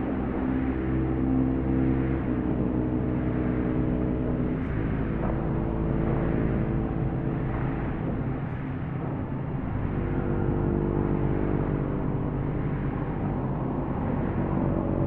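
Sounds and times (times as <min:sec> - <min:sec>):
dark ambient drone: 0:00.0 - 0:15.0
low rumble: 0:00.0 - 0:15.0
sustained low tones: 0:00.0 - 0:15.0.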